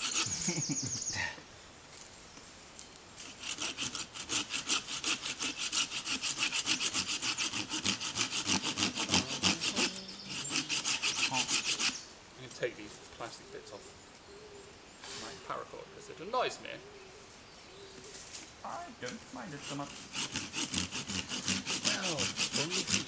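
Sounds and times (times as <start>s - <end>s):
hand saw cutting wood: 0.0s - 0.4s, 3.2s - 12.0s, 19.4s - 23.0s.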